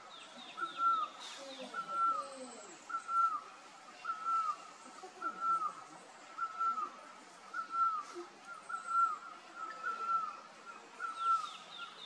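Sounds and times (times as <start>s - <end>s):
bird whistling call: 0.6s - 2.3s, 2.9s - 3.4s, 4.0s - 4.6s, 6.4s - 10.4s, 11.0s - 12.0s.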